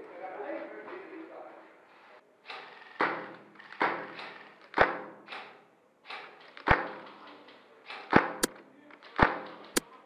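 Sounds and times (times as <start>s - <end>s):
airsoft gun shots echoing: 2.5s - 9.8s.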